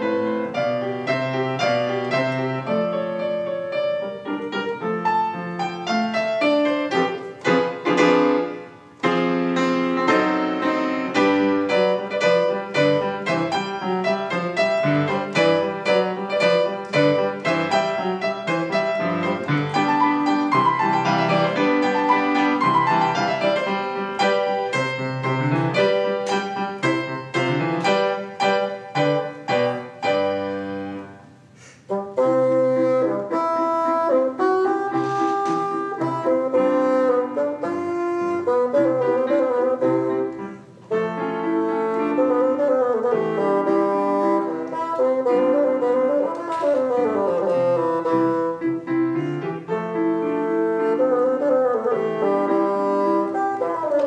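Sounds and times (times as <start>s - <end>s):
piano playing: 0.0s - 54.0s
bassoon long held notes: 31.9s - 49.1s, 49.7s - 54.0s.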